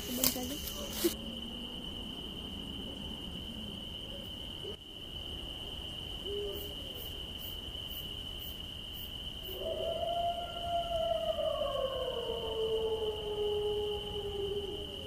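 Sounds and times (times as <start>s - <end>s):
insect chirring: 0.0s - 15.0s.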